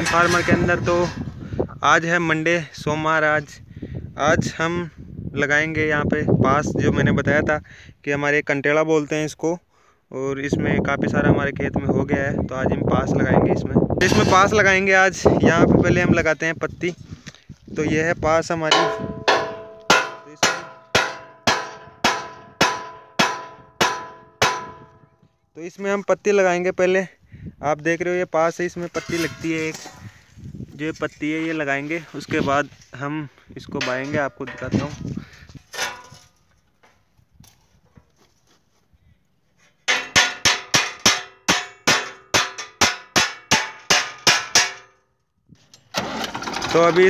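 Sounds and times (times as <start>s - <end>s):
hammer striking steel frame: 14.0s - 14.6s, 18.7s - 25.0s, 39.9s - 45.0s.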